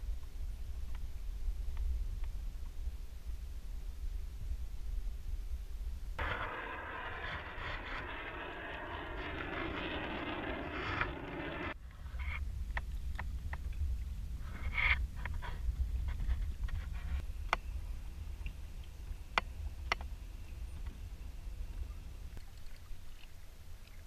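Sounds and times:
wind rumble on microphone: 0:00.0 - 0:24.0
steady rushing noise: 0:06.2 - 0:11.8.

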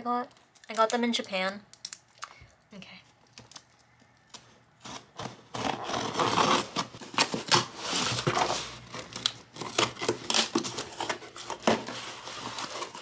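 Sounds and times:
scissors slitting packing tape: 0:09.1 - 0:13.0.

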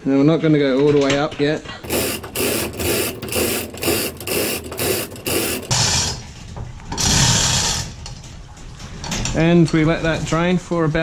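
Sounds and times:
hand winch ratcheting: 0:00.8 - 0:06.2.

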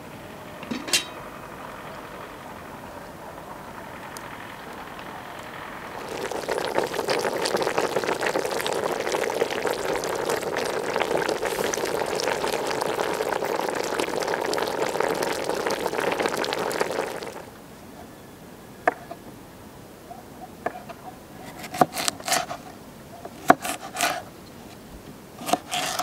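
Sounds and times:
pot bubbling on campfire: 0:00.5 - 0:17.6, 0:25.4 - 0:26.0.

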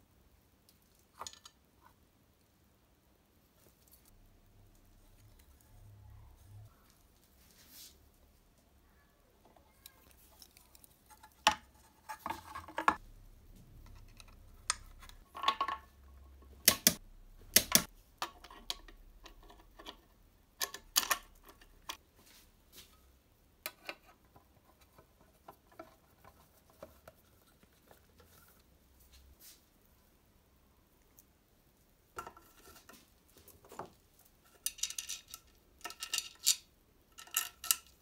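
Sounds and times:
metal parts clicking and clinking: 0:34.4 - 0:38.0.

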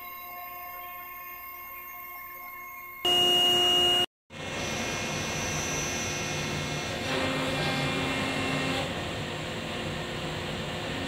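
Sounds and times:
loud steady beeping tone: 0:02.9 - 0:06.9
laundry machinery hum and whir: 0:04.3 - 0:11.0.

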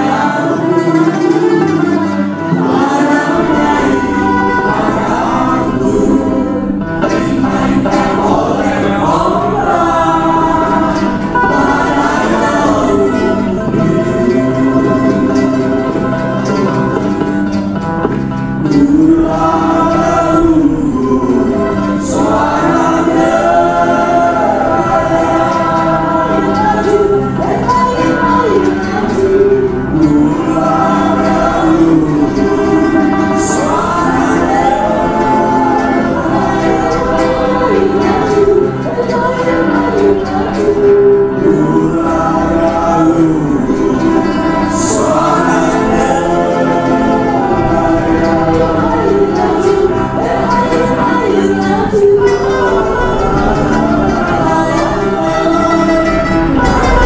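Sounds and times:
music with singing voices: 0:00.0 - 0:57.0.

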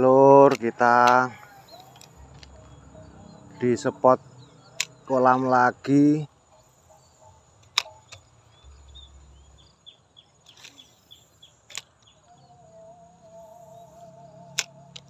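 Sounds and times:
high insect drone: 0:00.0 - 0:15.0
short bird chirps: 0:06.5 - 0:12.6
wavering hum: 0:10.7 - 0:15.0
fishing reel clicks: 0:13.8 - 0:15.0.

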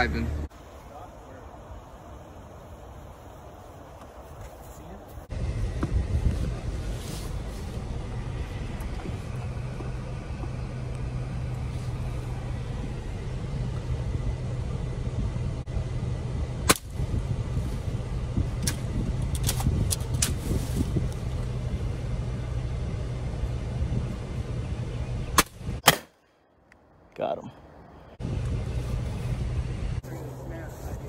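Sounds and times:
engine idling: 0:05.3 - 0:25.8, 0:28.2 - 0:31.0
air rifle shot: 0:25.4 - 0:26.2.

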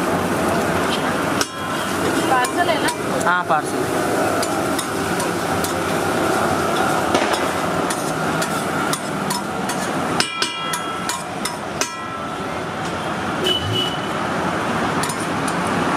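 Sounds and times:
metal spatula tapping on griddle: 0:07.3 - 0:12.2
ringing metal clangs: 0:10.2 - 0:12.4.

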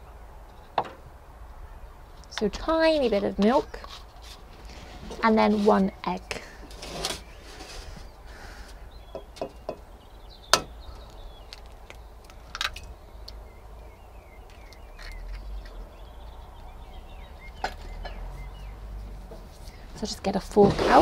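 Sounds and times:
eggshell cracking: 0:10.5 - 0:13.4.

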